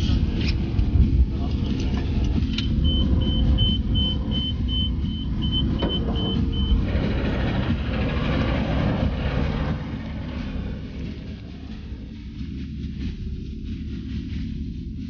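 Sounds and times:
diesel engine rumbling: 0.0s - 15.0s
high electronic beeps: 2.6s - 6.9s.

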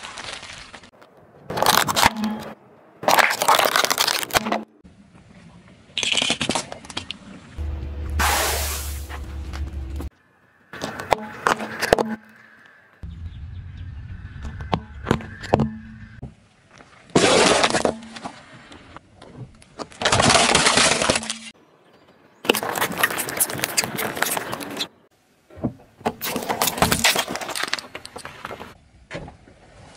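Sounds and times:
plastic crunching and cracking: 1.5s - 2.2s, 3.0s - 4.6s.

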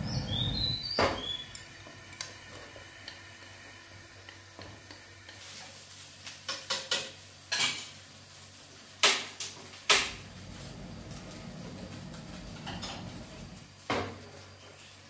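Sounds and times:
gas burner rushing: 0.0s - 5.7s, 9.8s - 13.8s.

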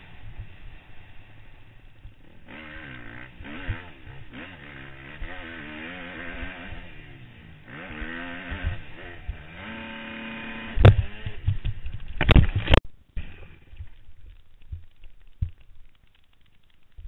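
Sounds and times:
dirt bike engine revving: 0.0s - 13.7s
dull thumps: 7.9s - 9.5s, 10.7s - 17.0s.

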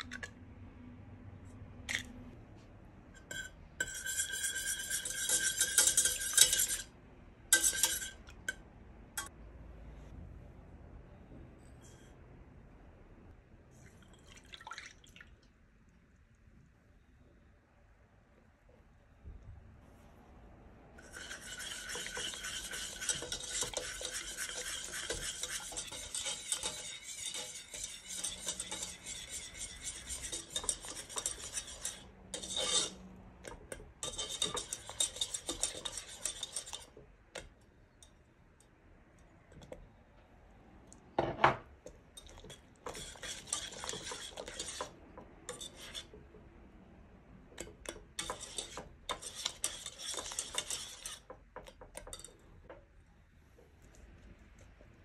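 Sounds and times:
whisk scraping a saucepan: 3.2s - 8.6s, 21.0s - 38.0s, 42.2s - 46.4s, 47.5s - 52.8s.

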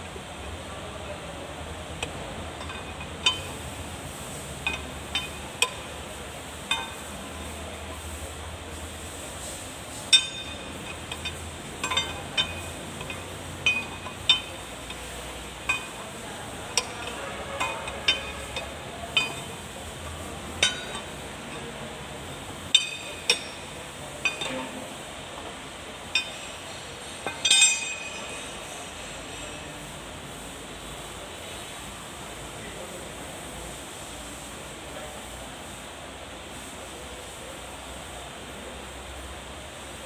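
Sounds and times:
spanner clinking on metal: 2.6s - 3.7s, 4.6s - 6.0s, 6.7s - 7.0s, 10.1s - 21.7s, 22.7s - 24.8s, 26.1s - 28.6s.

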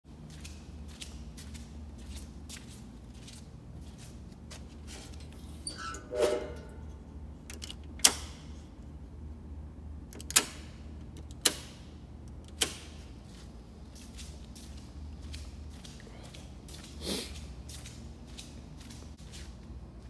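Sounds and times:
short squeak: 5.6s - 6.9s.

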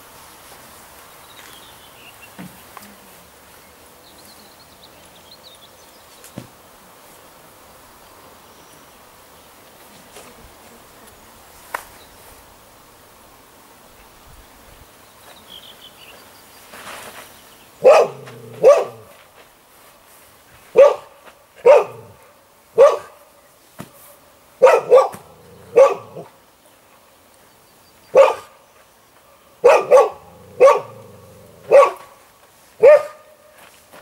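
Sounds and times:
dog barking: 17.8s - 19.1s, 20.7s - 22.2s, 22.8s - 23.2s, 24.6s - 26.4s, 28.1s - 28.6s, 29.6s - 32.1s, 32.8s - 33.3s.

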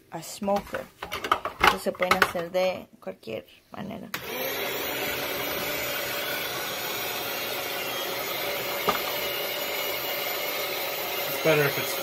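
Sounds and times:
meat slicer motor humming: 4.2s - 12.0s.

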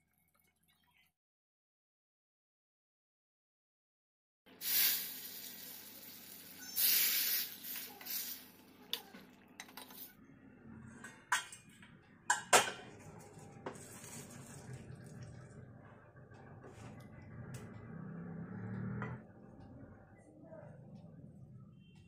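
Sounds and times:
ladle scraping inside metal pot: 13.6s - 14.9s.

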